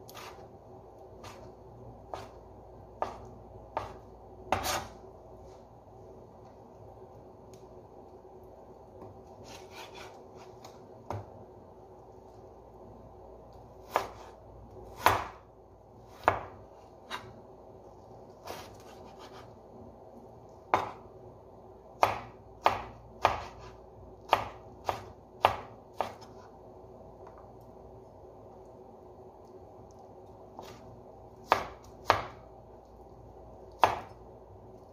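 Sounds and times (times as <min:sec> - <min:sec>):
knife chopping on cutting board: 0:02.1 - 0:02.4, 0:03.0 - 0:05.0, 0:13.8 - 0:15.4, 0:16.1 - 0:17.3, 0:20.7 - 0:21.0, 0:22.0 - 0:26.4, 0:31.4 - 0:32.4, 0:33.8 - 0:34.1.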